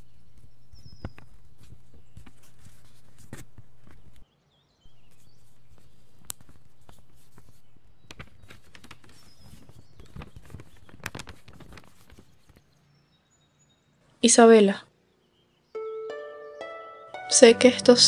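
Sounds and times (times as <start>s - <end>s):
paper rustling: 0.0s - 4.2s, 4.9s - 12.6s.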